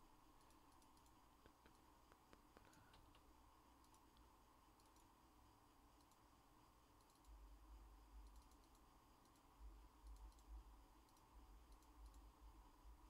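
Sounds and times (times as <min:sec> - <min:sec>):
faint clicks: 0:00.4 - 0:05.2, 0:06.0 - 0:06.2, 0:07.0 - 0:07.4, 0:08.2 - 0:12.3.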